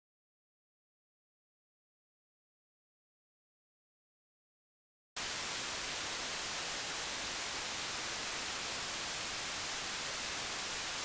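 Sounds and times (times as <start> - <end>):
microphone recording hiss: 5.2 - 11.0.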